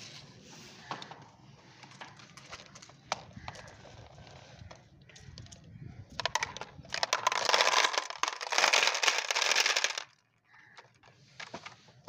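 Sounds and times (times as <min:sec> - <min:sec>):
glass marbles clattering: 0:06.2 - 0:10.3.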